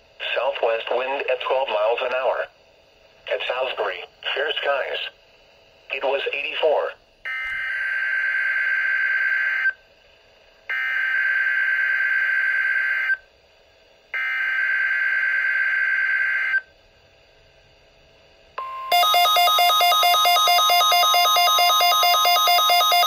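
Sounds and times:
alternating electronic alert tone: 0:18.6 - 0:23.0.

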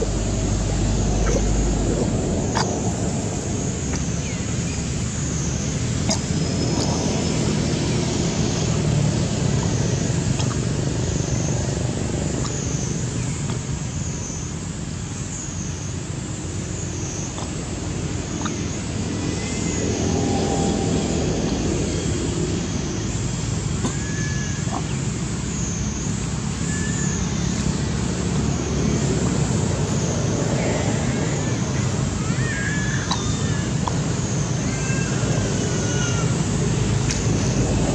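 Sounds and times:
low outdoor rumble: 0:00.0 - 0:37.9.

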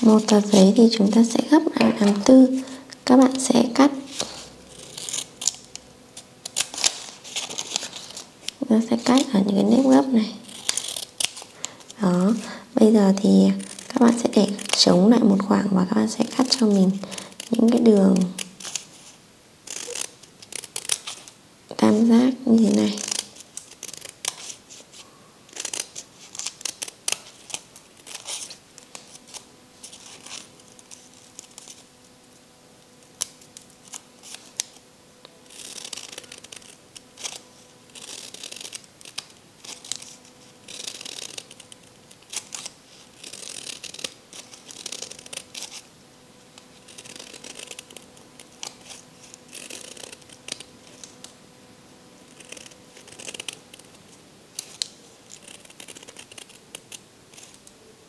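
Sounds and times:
paper rustling: 0:06.5 - 0:09.2
scissors snipping paper: 0:09.0 - 0:12.4, 0:13.0 - 0:15.1, 0:16.2 - 0:18.8, 0:19.7 - 0:21.3, 0:22.5 - 0:24.6, 0:35.5 - 0:37.4, 0:38.0 - 0:45.8, 0:46.6 - 0:51.3, 0:52.3 - 0:53.9, 0:54.6 - 0:57.6.

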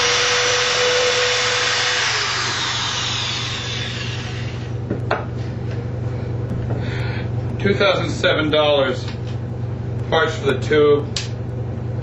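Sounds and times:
electric drill in wood: 0:00.0 - 0:04.7.

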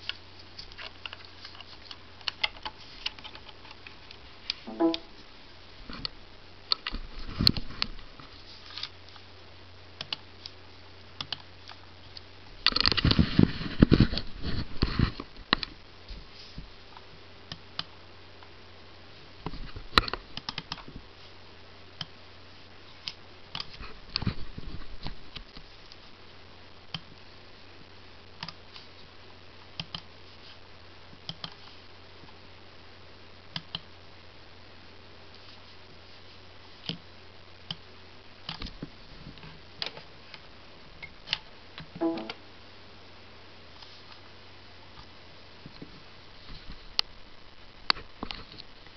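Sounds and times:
low steady hum: 0:00.0 - 0:48.9
touchpad button clicks: 0:04.7 - 0:05.1, 0:42.0 - 0:42.4.

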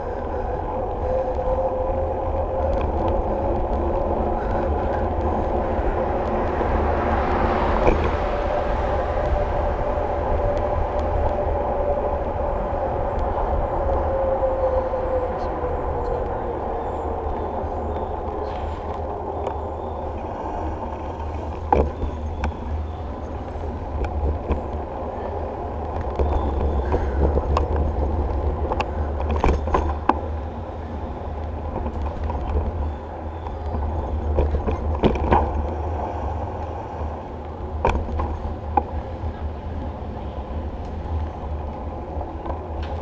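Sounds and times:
tyre and road noise: 0:00.0 - 0:43.0
wind buffeting microphone: 0:00.0 - 0:43.0.

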